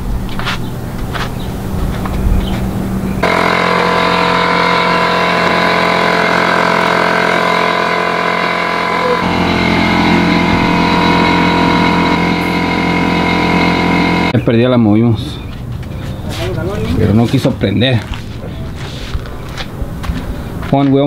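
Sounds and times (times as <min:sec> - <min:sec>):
air compressor running: 0:02.5 - 0:14.4.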